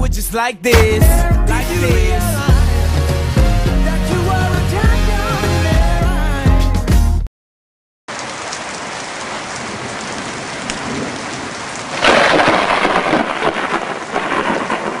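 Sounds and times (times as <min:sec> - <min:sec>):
steady rain: 0:08.1 - 0:15.0
thunder clap rumbling: 0:09.6 - 0:15.0.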